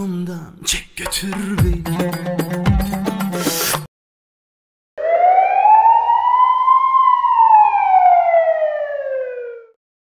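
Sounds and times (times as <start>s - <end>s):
siren-like gliding tone: 5.0s - 9.8s.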